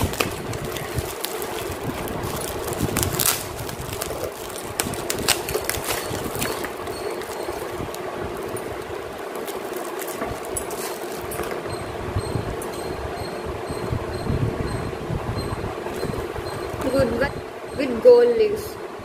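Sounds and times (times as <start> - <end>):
bubble wrap crinkling: 0.0 - 11.7.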